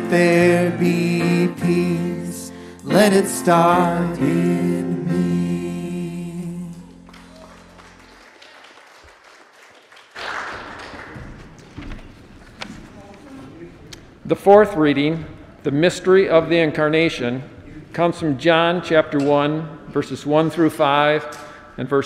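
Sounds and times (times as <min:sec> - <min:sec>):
people singing: 0:00.0 - 0:07.0.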